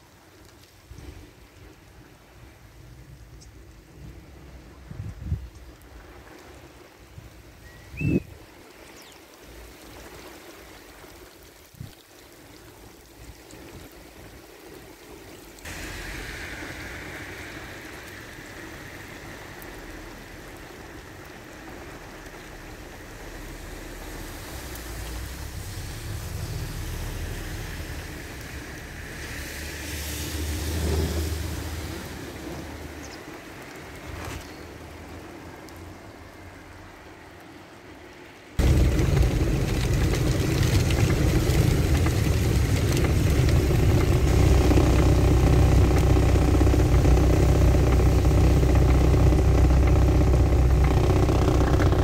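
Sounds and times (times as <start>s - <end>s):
rain over water: 0.0s - 52.0s
wind: 0.0s - 52.0s
wind buffeting microphone: 0.9s - 8.6s, 38.6s - 52.0s.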